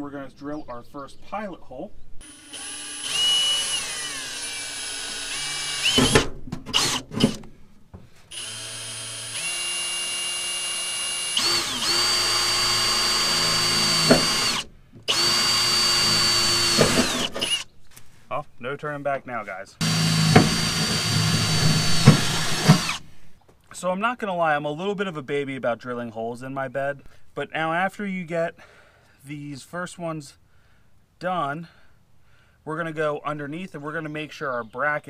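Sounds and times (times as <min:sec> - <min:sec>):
cordless drill whining: 0:02.2 - 0:07.5, 0:08.3 - 0:17.7, 0:19.8 - 0:23.1.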